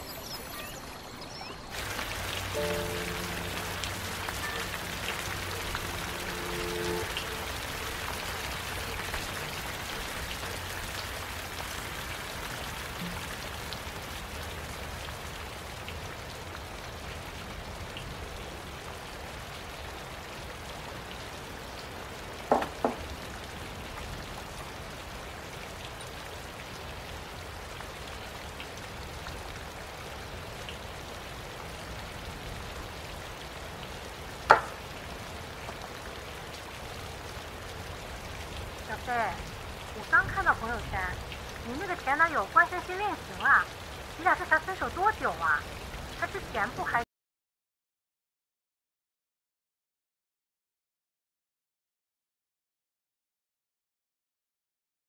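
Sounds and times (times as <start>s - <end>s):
rain hissing: 1.7s - 47.0s
knocks: 22.5s - 23.0s, 34.5s - 34.8s.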